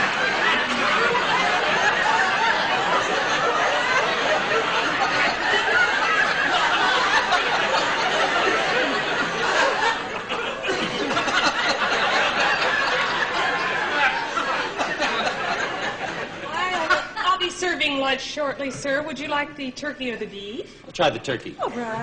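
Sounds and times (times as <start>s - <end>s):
audience laughing: 0.0s - 17.5s.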